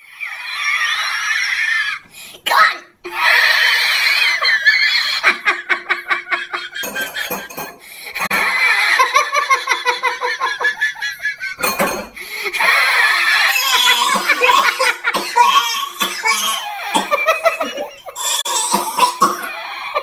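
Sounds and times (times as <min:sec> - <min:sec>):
hearty laughter: 0:03.1 - 0:15.3, 0:16.6 - 0:18.2.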